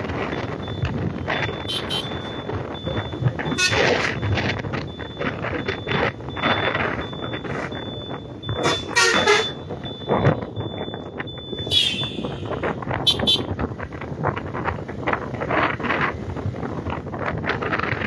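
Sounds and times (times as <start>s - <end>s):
motorcycle engine and road noise: 0.0s - 18.0s
wind buffeting microphone: 0.0s - 18.0s
vehicle horn toots: 1.7s - 2.2s, 3.5s - 4.0s, 8.6s - 9.7s, 11.6s - 13.5s.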